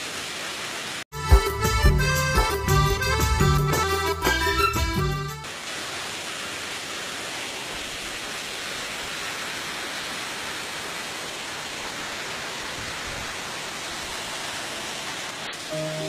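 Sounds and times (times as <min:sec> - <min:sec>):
waterfall rushing: 0:05.4 - 0:16.0.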